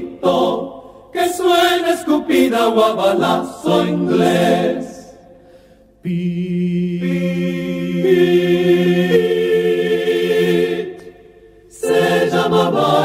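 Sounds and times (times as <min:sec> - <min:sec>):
vocal quartet singing chord: 0:00.0 - 0:13.0.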